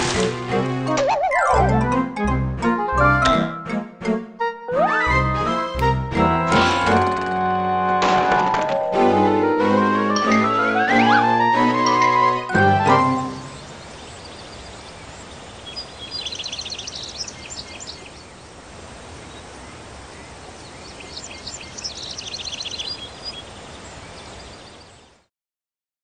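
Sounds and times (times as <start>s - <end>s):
bird chattering song: 13.4s - 18.3s, 20.7s - 24.9s.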